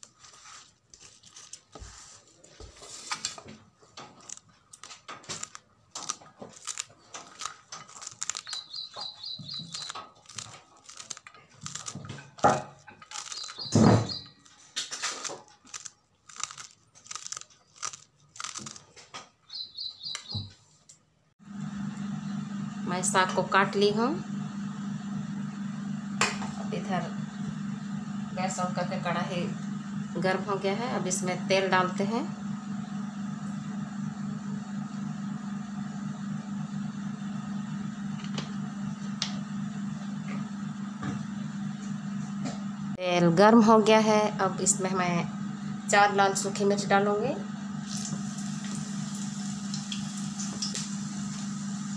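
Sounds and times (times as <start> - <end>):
knife crunching through crisp stems: 4.1 - 19.1.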